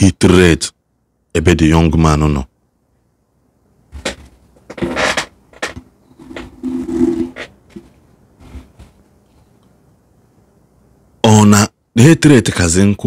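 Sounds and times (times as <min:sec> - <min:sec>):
rubbing against a microphone: 0:04.0 - 0:05.3, 0:06.1 - 0:09.5.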